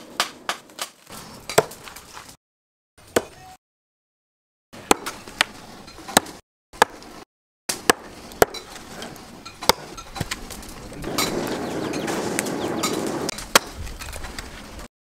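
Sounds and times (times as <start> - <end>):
axe chopping into log: 0.2 - 1.9, 4.8 - 5.5, 6.1 - 7.1, 7.7 - 8.8, 9.6 - 10.4, 13.3 - 13.8
steady rushing noise: 10.8 - 13.3.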